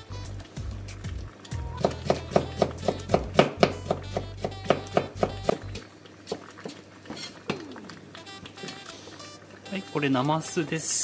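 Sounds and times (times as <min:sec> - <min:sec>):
knife chopping on wooden board: 0:01.8 - 0:05.6.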